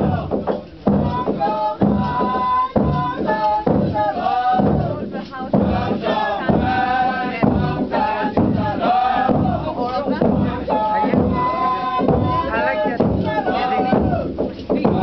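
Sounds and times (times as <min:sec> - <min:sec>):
group chanting: 0:00.0 - 0:15.0.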